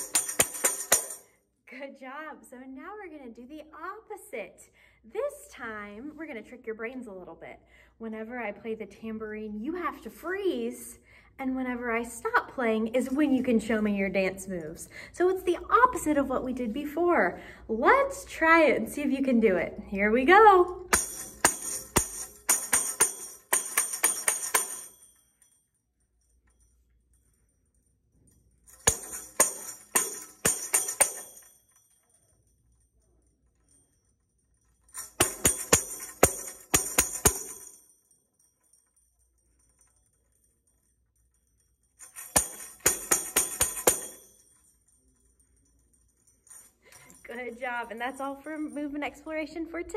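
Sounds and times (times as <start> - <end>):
tambourine jingling: 0.0 - 1.5, 20.6 - 49.9.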